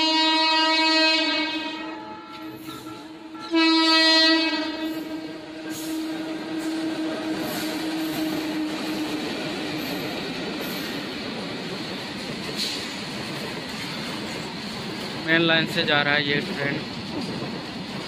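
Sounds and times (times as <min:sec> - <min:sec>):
train horn blasts: 0:00.0 - 0:09.2
train rumbling on rails: 0:00.0 - 0:18.0.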